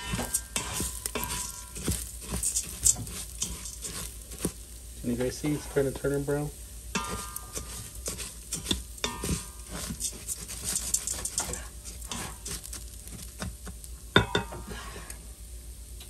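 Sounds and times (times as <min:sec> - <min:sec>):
spatula scraping metal pot: 0:00.0 - 0:04.6, 0:07.0 - 0:13.5
rice sizzling in oil: 0:00.0 - 0:16.0.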